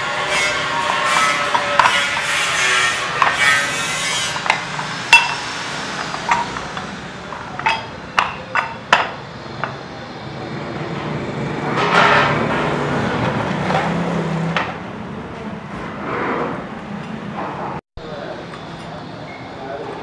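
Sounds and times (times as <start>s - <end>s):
metal scraping and rubbing: 0.0s - 9.7s, 11.6s - 14.1s.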